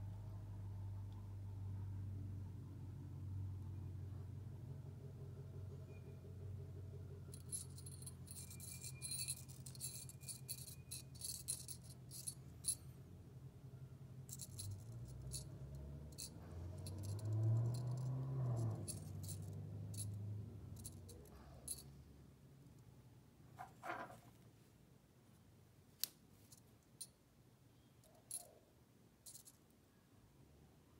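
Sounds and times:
small bell jingling and rattling: 7.3s - 12.9s, 14.3s - 21.9s, 28.0s - 28.6s, 29.2s - 29.6s.

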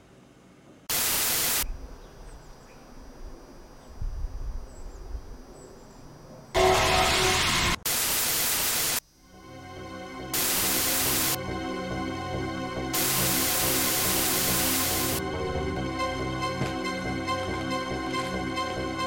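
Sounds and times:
television static hiss: 0.9s - 1.8s, 7.9s - 9.0s, 10.4s - 11.4s, 13.0s - 15.2s.

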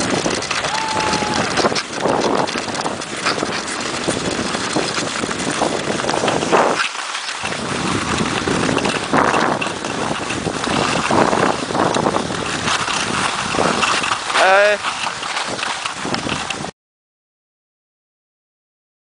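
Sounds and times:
wind buffeting microphone: 0.0s - 16.7s.

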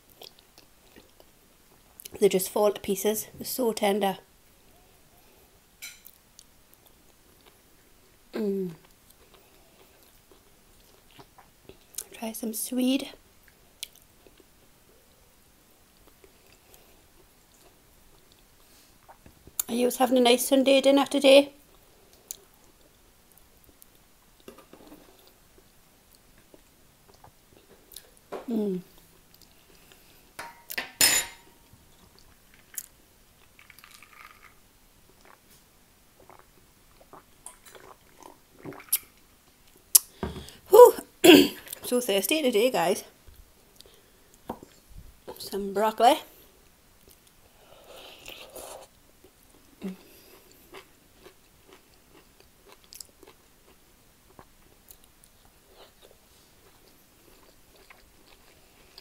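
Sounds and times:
cutlery and glass mug clinking: 30.4s - 31.5s
person gulping a drink: 33.6s - 35.4s, 36.2s - 39.2s
chewing mouth sounds: 36.2s - 39.1s, 49.5s - 59.0s.

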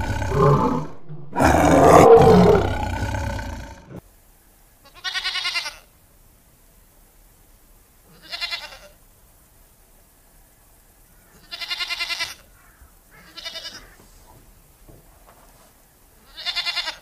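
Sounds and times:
goat bleating: 4.8s - 5.9s, 8.1s - 9.0s, 11.4s - 12.5s, 13.1s - 14.0s, 16.2s - 17.0s.

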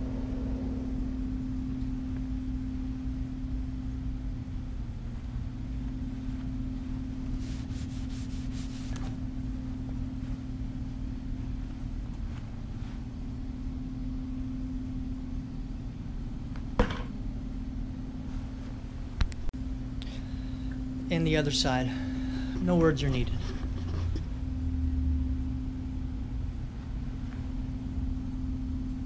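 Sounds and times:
low mechanical hum: 0.0s - 29.0s
scratchy rustle: 7.3s - 9.2s.

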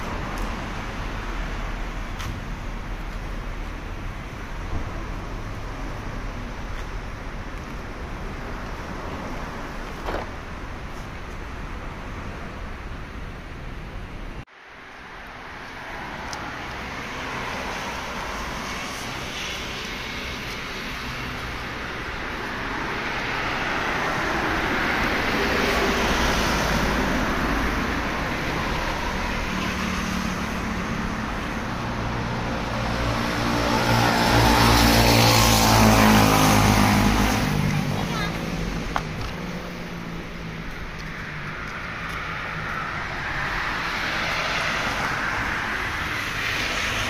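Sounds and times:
road traffic noise: 0.0s - 47.0s
vehicle passing: 22.6s - 47.0s.

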